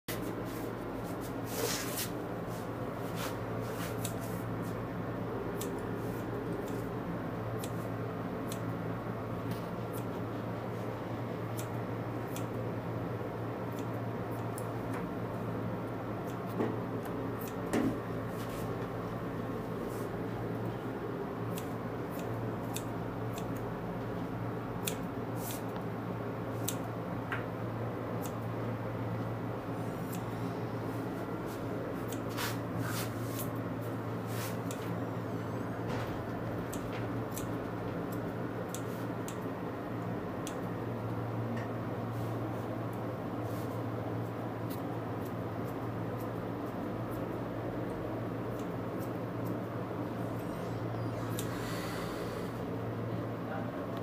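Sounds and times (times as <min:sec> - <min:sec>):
low electrical hum: 0:00.1 - 0:54.0
scissors snipping fur: 0:03.1 - 0:04.8, 0:05.5 - 0:08.8, 0:09.4 - 0:10.3, 0:11.5 - 0:12.6, 0:13.6 - 0:15.0, 0:16.2 - 0:19.0, 0:21.4 - 0:23.8, 0:24.8 - 0:25.8, 0:26.5 - 0:27.0, 0:28.2 - 0:28.4, 0:30.0 - 0:30.4, 0:32.0 - 0:33.6, 0:34.4 - 0:35.0, 0:36.4 - 0:39.5, 0:40.4 - 0:40.8, 0:44.3 - 0:51.7.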